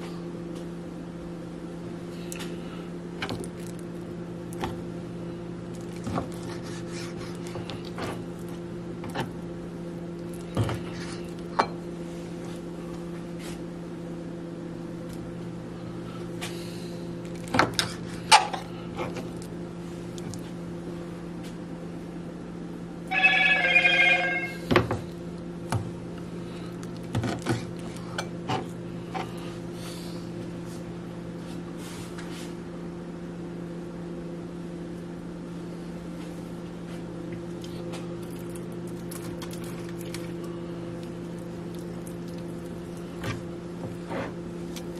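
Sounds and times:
steady low hum: 0.0 - 44.9
ringing pitched tones: 23.1 - 24.7.

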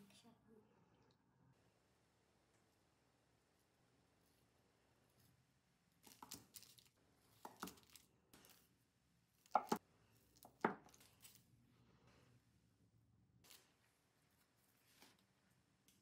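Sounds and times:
knife chopping on cutting board: 9.6 - 9.8.

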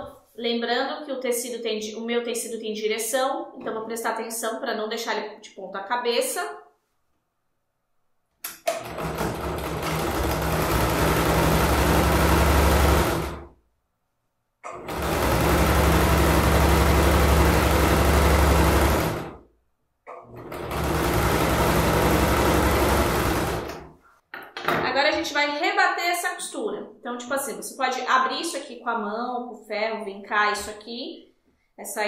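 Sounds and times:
sewing machine stitching: 8.6 - 13.5, 14.6 - 19.4, 20.1 - 23.9.

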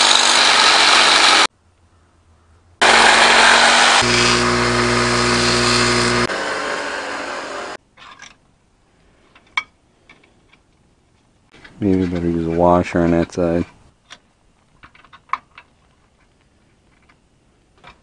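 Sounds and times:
grinder hissing on steel: 0.0 - 1.5, 2.8 - 7.8
grinder motor hum: 0.0 - 1.5, 2.8 - 7.8.

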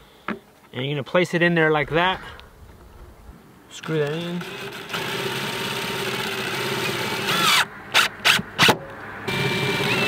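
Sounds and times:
cordless impact driver driving screw: 3.8 - 10.0.

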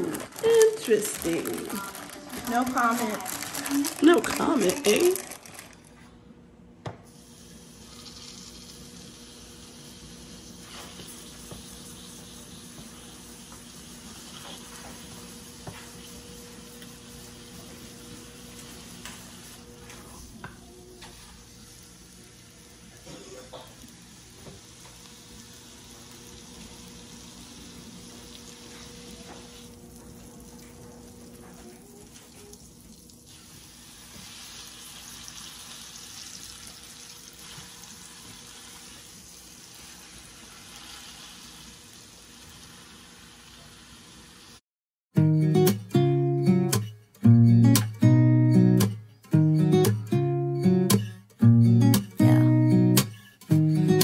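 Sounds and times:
steak sizzling in a frying pan: 21.2 - 29.8, 33.3 - 44.6.

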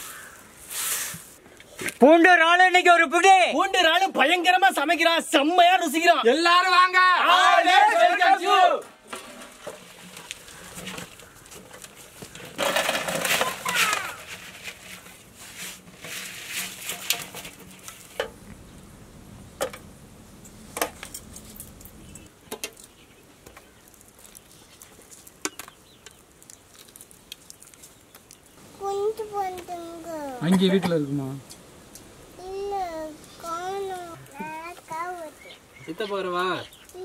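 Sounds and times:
prawns sliding and clattering: 9.1 - 18.3.

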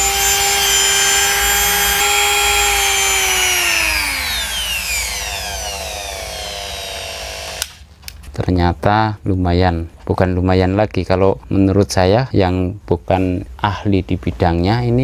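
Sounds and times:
die grinder motor whining: 0.0 - 7.8.

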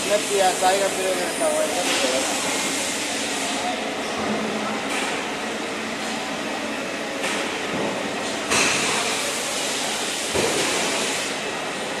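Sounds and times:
railway coach running noise: 10.9 - 12.0.

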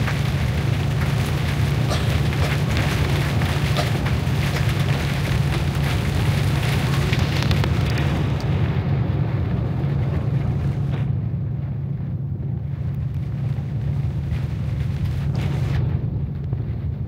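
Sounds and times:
tyres on wet road: 0.0 - 11.1
hiss of rain and spray: 0.0 - 17.0
vehicle engine rumble: 0.0 - 17.0.

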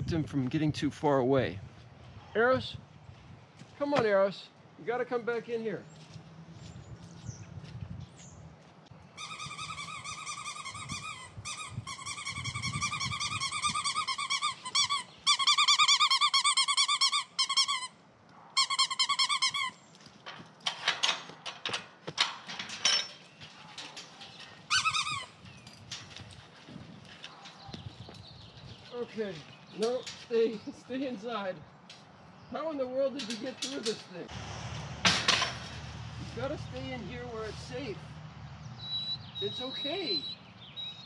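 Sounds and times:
dog whining: 9.2 - 17.8, 24.7 - 25.3.

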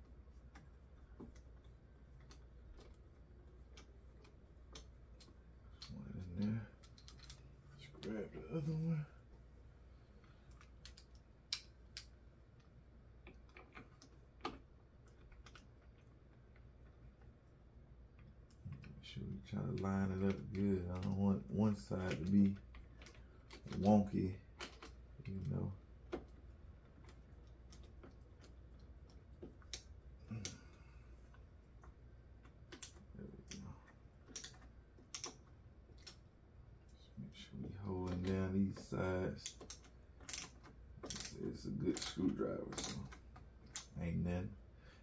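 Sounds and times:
ratcheting screwdriver clicking: 39.4 - 41.3, 42.8 - 43.9.

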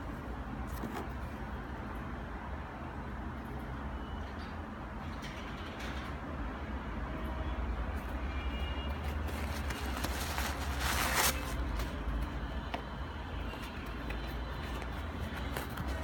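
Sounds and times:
shoe brushing and rustling: 9.0 - 12.3, 13.5 - 16.0.

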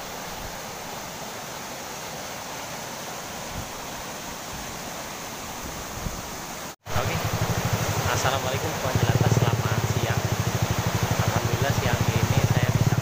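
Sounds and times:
water rushing over a weir: 0.0 - 13.0.

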